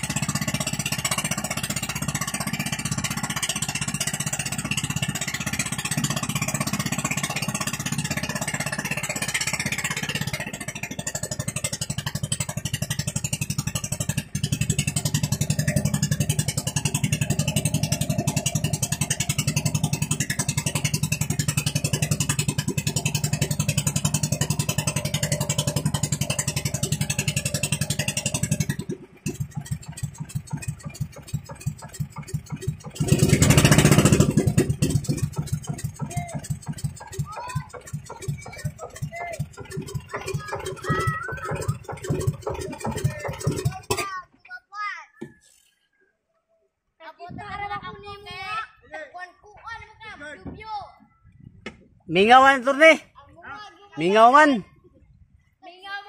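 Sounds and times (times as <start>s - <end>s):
small engine running: 0.0s - 44.2s.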